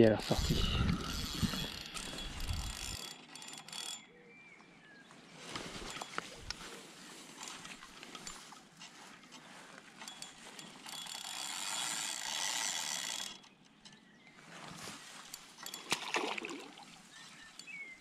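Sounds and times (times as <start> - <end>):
fishing reel ratcheting: 0.0 - 4.1, 5.8 - 6.7, 7.4 - 13.6, 15.1 - 16.3.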